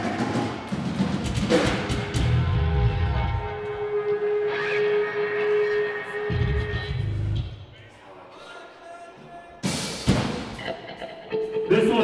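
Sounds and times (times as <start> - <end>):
drum kit hitting hard: 0.0 - 2.6, 9.6 - 10.6
live band playing loud music: 0.0 - 7.6, 9.6 - 12.0.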